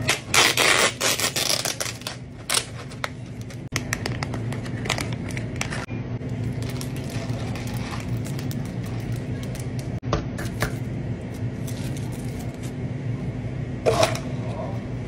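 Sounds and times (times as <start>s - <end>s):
plastic pouch crinkling and tearing: 0.3s - 2.7s.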